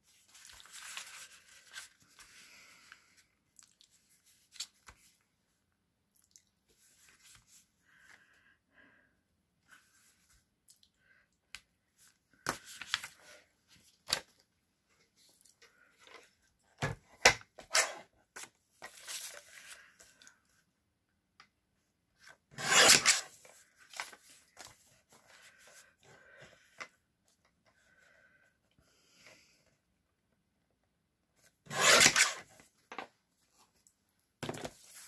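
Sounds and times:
paper rustling and sliding: 0.0s - 3.2s, 34.5s - 35.0s.

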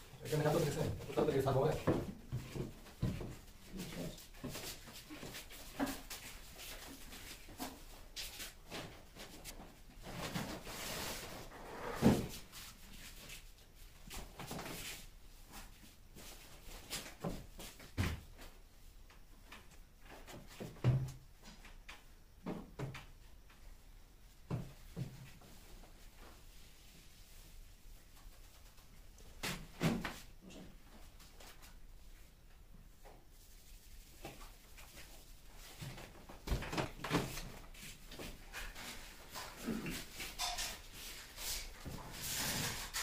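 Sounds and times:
light knocks and thumps: 1.8s - 3.5s.

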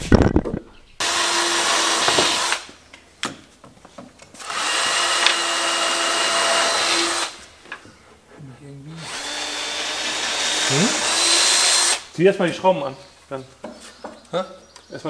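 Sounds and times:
cordless drill drilling into wood: 1.0s - 2.7s, 4.4s - 7.4s, 9.0s - 12.1s.

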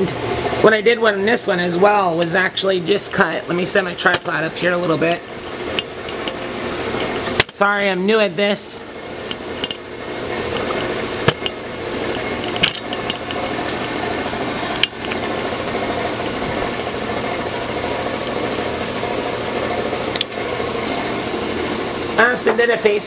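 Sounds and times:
tripod knocks: 10.5s - 13.8s.

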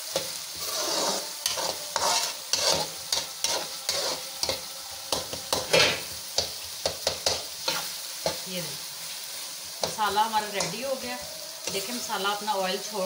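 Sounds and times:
spatula scraping a pan: 0.0s - 8.4s
food sizzling in oil: 0.0s - 13.0s.

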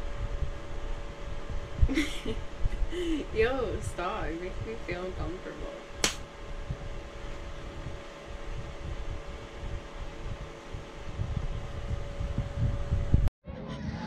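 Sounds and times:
low rumbling: 0.0s - 14.0s
mechanical hum with whine: 0.0s - 14.0s.

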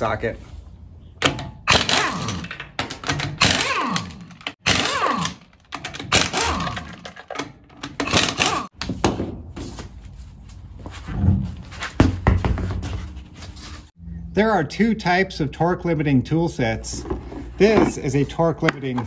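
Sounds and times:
air impact wrench hammering: 1.2s - 8.8s.

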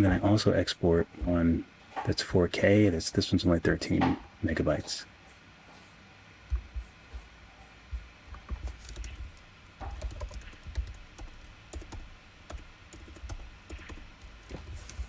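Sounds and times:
computer keyboard clicks: 8.5s - 14.7s.

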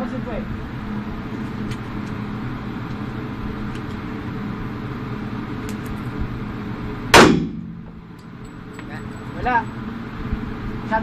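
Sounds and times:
steady low hum: 0.0s - 11.0s
pistol shot: 7.1s - 7.8s.

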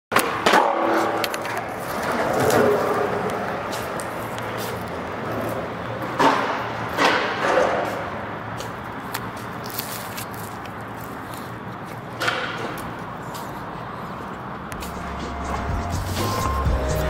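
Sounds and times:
sharp skateboard clicks: 0.1s - 13.7s
skateboard wheels rolling on concrete: 0.1s - 17.0s.

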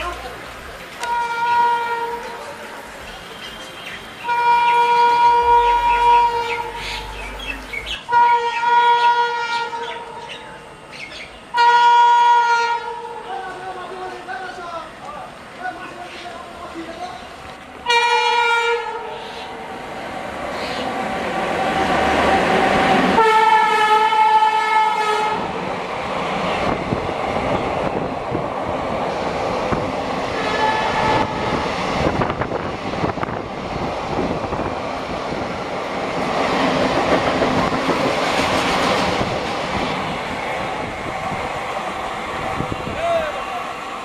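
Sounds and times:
wheels clicking over rail joints: 0.0s - 3.9s
train wheels rolling: 0.0s - 8.7s, 19.1s - 44.0s
train horn blast: 1.0s - 2.5s, 3.2s - 7.4s, 8.1s - 10.3s, 11.5s - 13.3s, 17.8s - 19.5s, 23.2s - 25.6s, 30.3s - 31.7s.

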